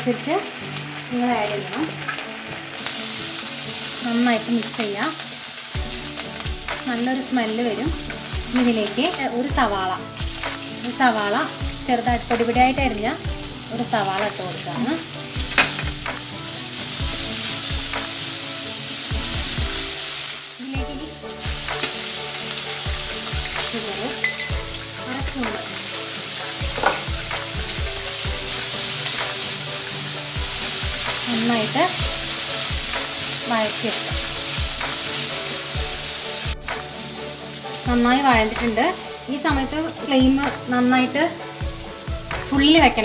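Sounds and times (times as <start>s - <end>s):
vegetables sizzling in hot oil: 0.0s - 43.0s
wooden spatula scraping pan: 13.0s - 17.9s, 21.2s - 27.5s
spatula knocking against pan: 15.4s - 16.1s.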